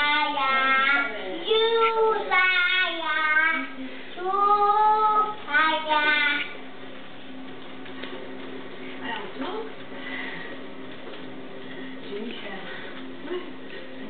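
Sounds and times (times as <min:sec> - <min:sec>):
child singing: 0:00.0 - 0:06.6.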